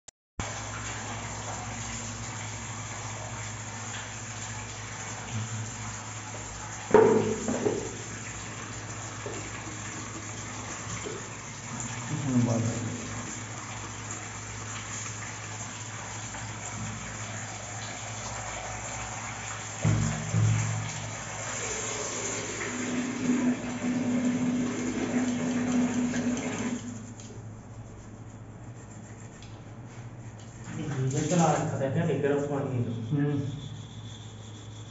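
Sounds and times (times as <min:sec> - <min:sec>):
running water hiss in plumbing: 0:00.4 - 0:34.9
brush scrubbing metal valve: 0:19.8 - 0:34.9
steady hum: 0:19.8 - 0:34.9
metallic scrape and squeak: 0:32.7 - 0:34.9.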